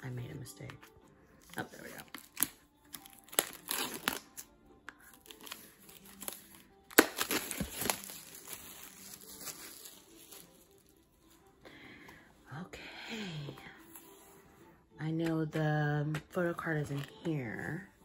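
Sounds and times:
soft music: 0.0s - 18.0s
plastic wrapping crinkling and tearing: 1.4s - 11.5s.

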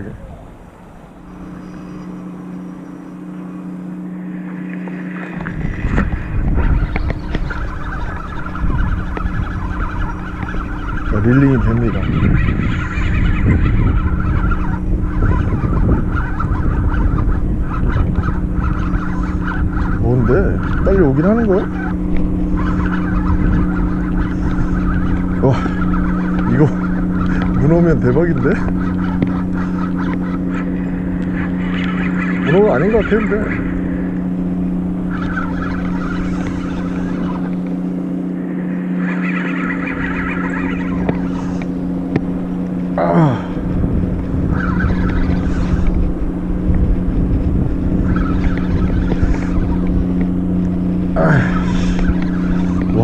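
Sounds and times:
fishing reel whirring: 0.0s - 53.0s
steady low hum: 0.0s - 53.0s
wind rumble on microphone: 0.0s - 53.0s.

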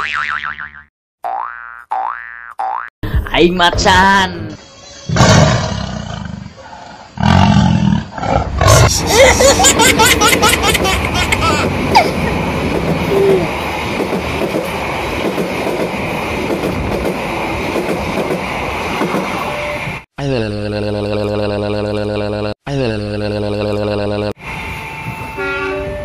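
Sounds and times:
tiger roar: 5.1s - 9.1s
passenger train passing: 8.9s - 20.0s, 24.4s - 26.0s.

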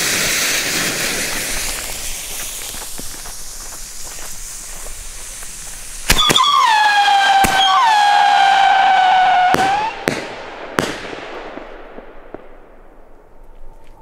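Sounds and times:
firework howling in flight: 0.0s - 10.8s
firework shells bursting: 0.0s - 12.5s.

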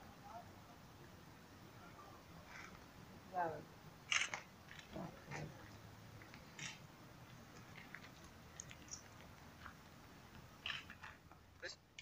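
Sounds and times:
crunchy rustles: 4.1s - 11.4s
faint clicks: 4.1s - 11.4s.

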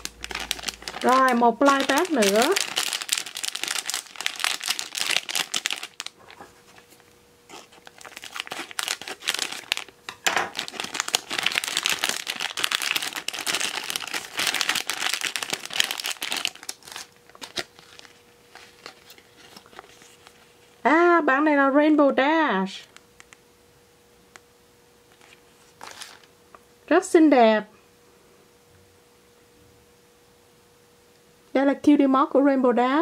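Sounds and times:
plastic pouch crinkling: 0.0s - 20.7s, 25.1s - 26.3s.

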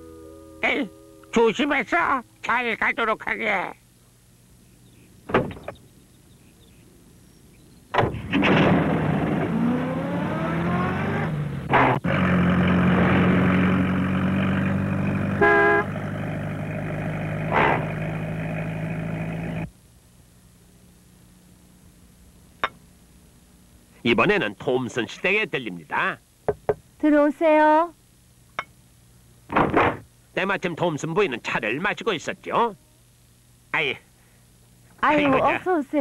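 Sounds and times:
van engine starting and driving: 8.0s - 19.7s
van horn toot: 15.3s - 16.0s.

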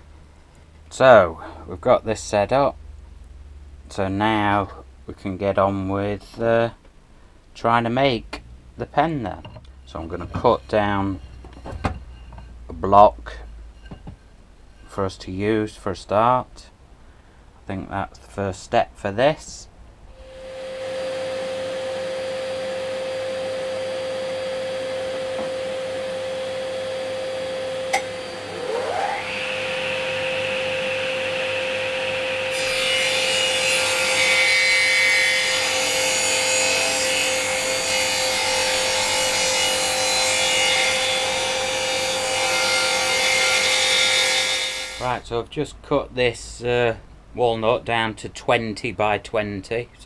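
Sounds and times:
motor winding up whine: 20.2s - 32.5s
saw blade cutting wood: 23.6s - 45.2s.

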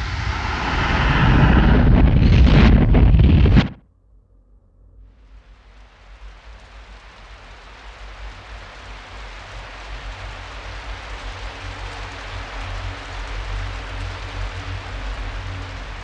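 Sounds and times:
low rumble: 0.0s - 4.6s
rain-like hiss: 5.1s - 16.0s.

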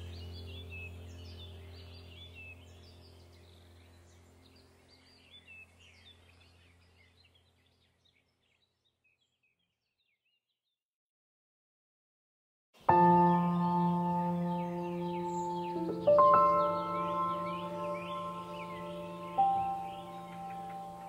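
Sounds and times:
low steady drone: 0.0s - 6.8s, 12.9s - 21.0s
birds chirping: 0.0s - 10.6s, 12.8s - 21.0s.

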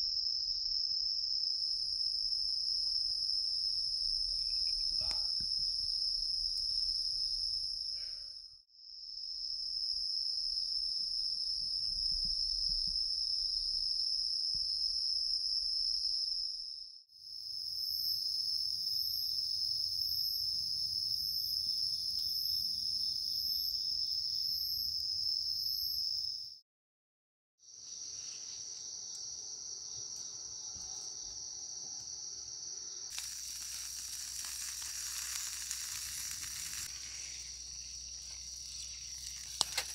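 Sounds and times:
crickets and insects trilling: 1.2s - 8.1s, 27.8s - 39.9s
food sizzling in frying: 33.0s - 39.9s.

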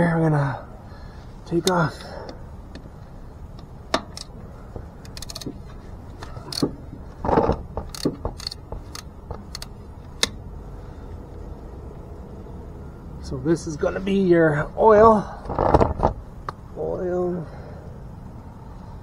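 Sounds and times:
metallic clicks of hand tool: 6.2s - 6.8s, 7.8s - 10.4s.

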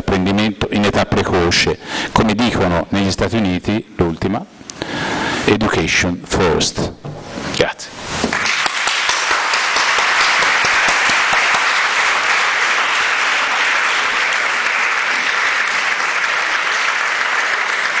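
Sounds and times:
audience applauding: 8.3s - 18.0s.

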